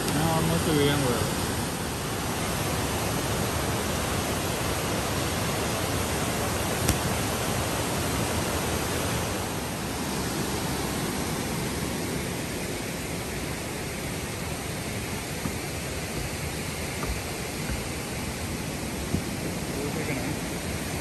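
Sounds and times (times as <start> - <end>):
waterfall roaring: 0.0 - 21.0.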